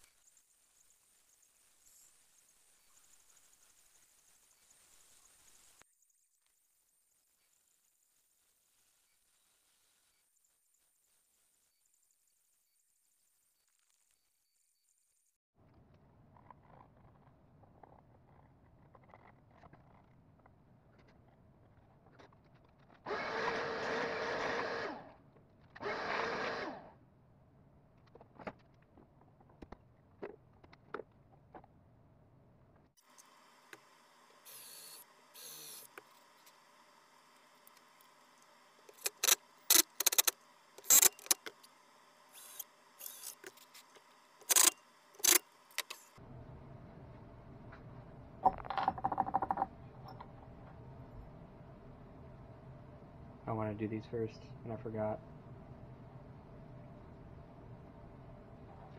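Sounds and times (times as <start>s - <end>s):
vacuum motor winding down: 23.0s - 25.2s, 25.8s - 27.0s
shop hum: 23.0s - 27.8s, 32.0s - 58.9s.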